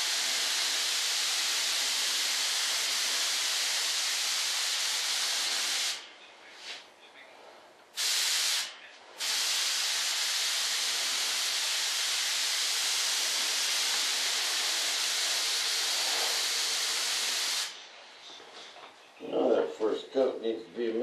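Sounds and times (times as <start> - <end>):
spray gun hissing: 0.0 - 6.0, 8.0 - 17.8.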